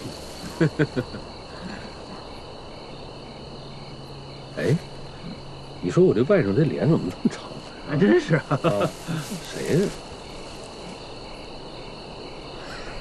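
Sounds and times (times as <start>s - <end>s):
men laughing: 0.0s - 2.2s, 7.2s - 10.1s, 12.6s - 13.0s
crickets chirping: 0.0s - 13.0s.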